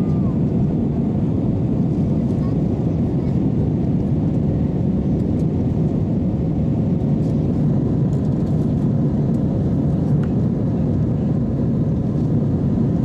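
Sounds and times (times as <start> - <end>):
jet engine cabin drone: 0.0 - 13.0.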